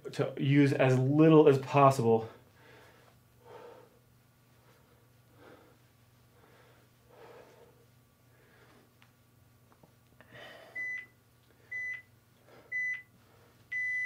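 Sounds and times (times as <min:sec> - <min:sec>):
soft breaths: 0:02.2 - 0:09.2, 0:10.2 - 0:14.0
interval timer beeps: 0:13.7 - 0:14.0.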